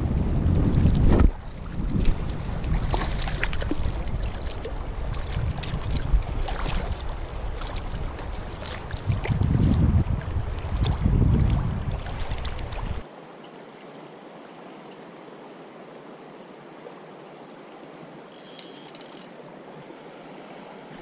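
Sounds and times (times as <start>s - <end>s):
wind buffeting microphone: 0.0s - 13.0s
river current rippling: 0.2s - 21.0s.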